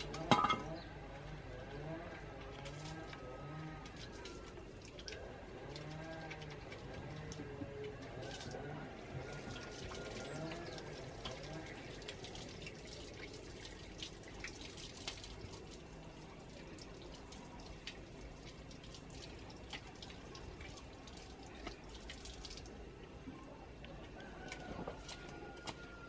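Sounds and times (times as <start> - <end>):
water dripping: 2.1 - 26.0
water splashing in plastic basin: 2.6 - 22.8
water running from tap: 9.2 - 22.7.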